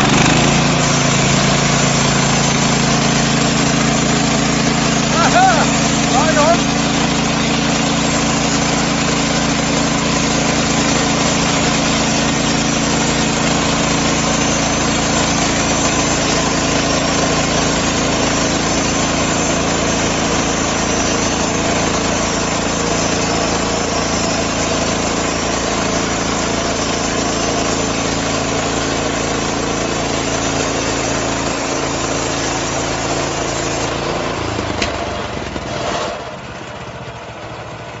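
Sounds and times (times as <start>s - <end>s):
band saw cutting log: 0.0s - 36.4s
sawmill gasoline engine running: 0.0s - 38.0s.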